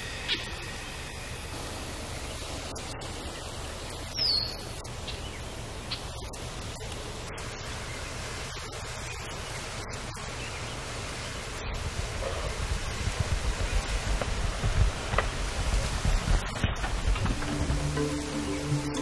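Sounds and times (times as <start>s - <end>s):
low rumble: 11.6s - 19.0s
wind noise on microphone: 11.6s - 19.0s.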